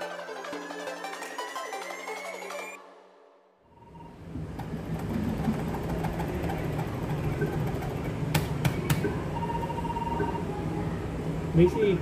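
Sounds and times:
machine and room hum: 3.6 - 12.0
electronic beep: 3.7 - 4.2, 9.1 - 10.5.

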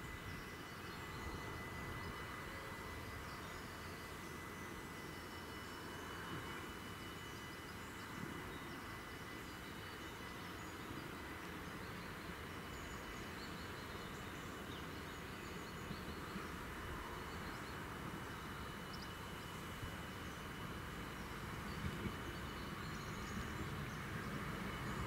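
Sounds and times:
faint high whine: 0.0 - 25.0
distant diesel railcar approaching: 11.1 - 25.0.

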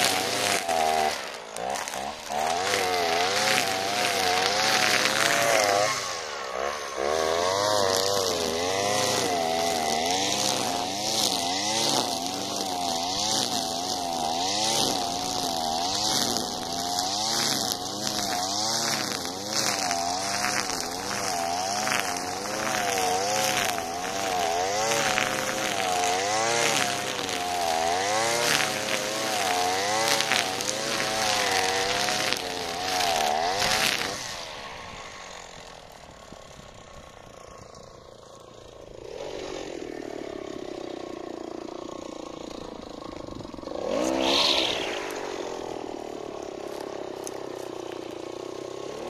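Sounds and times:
nylon line hissing through grass: 0.0 - 12.1, 28.0 - 35.7, 43.6 - 49.0
brushcutter engine at high revs: 0.0 - 49.0.

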